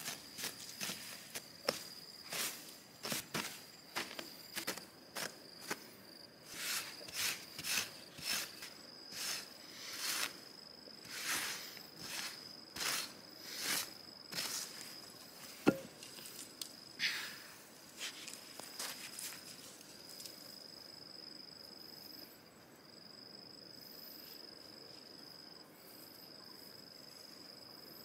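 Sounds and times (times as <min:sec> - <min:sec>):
blade chopping into dry dirt: 0:11.1 - 0:14.8
sharp knock: 0:15.7 - 0:15.9.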